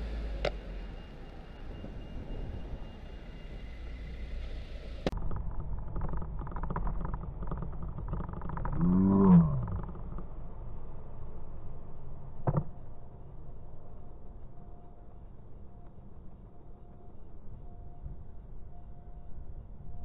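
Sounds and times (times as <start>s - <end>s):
vehicles passing close by: 0.0s - 5.2s
road noise rumble: 0.0s - 20.0s.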